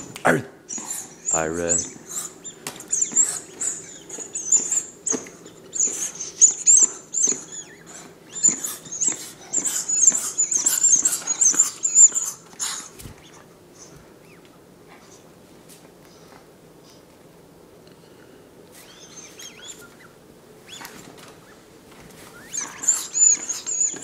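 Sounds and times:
squeaky toy squeaking: 0:08.3 - 0:12.8, 0:22.5 - 0:24.0.

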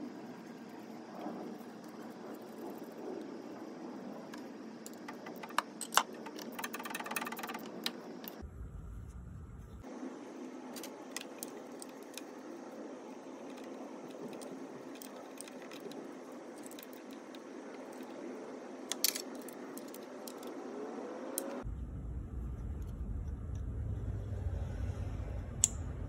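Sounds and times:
steady low rumble: 0:00.0 - 0:05.8, 0:08.0 - 0:18.9, 0:19.5 - 0:26.0.

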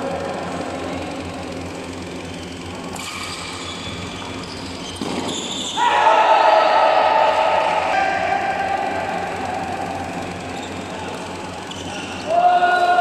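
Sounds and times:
people shouting and cheering: 0:05.7 - 0:10.4, 0:12.2 - 0:13.0.

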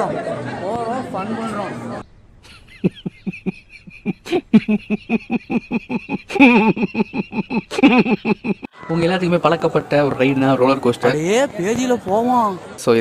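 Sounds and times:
person laughing: 0:02.4 - 0:08.7.

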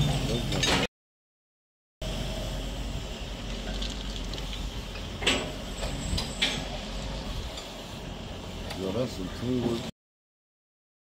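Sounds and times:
diesel engines running: 0:02.0 - 0:09.9.

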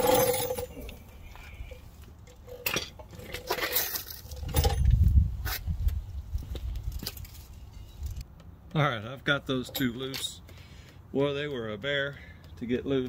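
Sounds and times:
metal hand tools clinking: 0:00.0 - 0:01.0.

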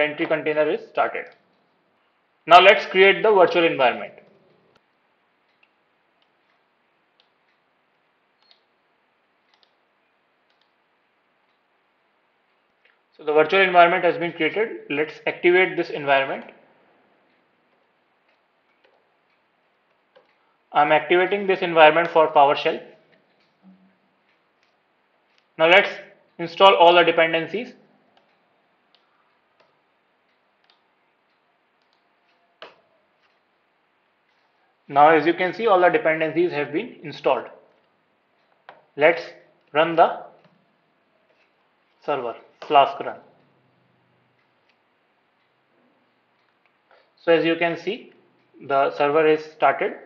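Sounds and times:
low room hiss: 0:00.0 - 0:50.0
keyboard and mouse clicks: 0:08.4 - 0:08.7, 0:09.4 - 0:09.8, 0:10.4 - 0:10.8, 0:17.3 - 0:20.4, 0:28.1 - 0:33.5
mouse and keyboard clicks: 0:08.4 - 0:08.7.

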